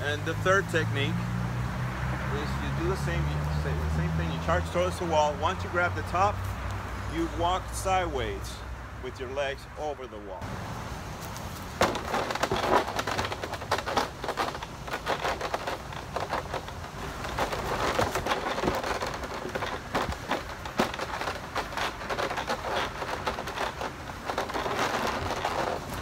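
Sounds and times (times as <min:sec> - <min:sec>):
steady rustling hiss: 0:10.4 - 0:26.0
running footsteps on wood chips: 0:10.8 - 0:26.0
knocking and scraping on wooden wall: 0:11.8 - 0:26.0.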